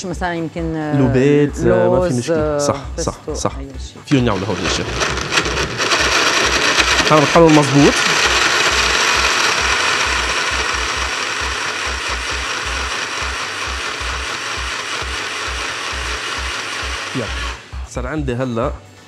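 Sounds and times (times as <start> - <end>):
electric blender running: 4.1 - 17.8.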